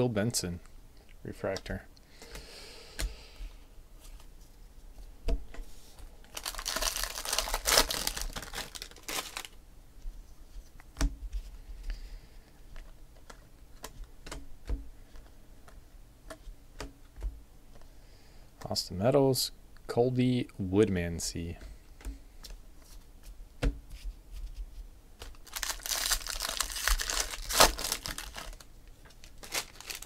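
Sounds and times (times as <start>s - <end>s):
cards crinkling and rustling: 5.9s - 9.6s, 25.2s - 30.0s
cards clicking and tapping: 12.7s - 17.8s.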